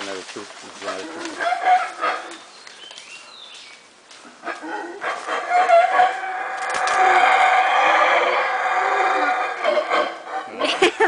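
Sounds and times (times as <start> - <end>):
howler monkeys howling: 4.3 - 10.8.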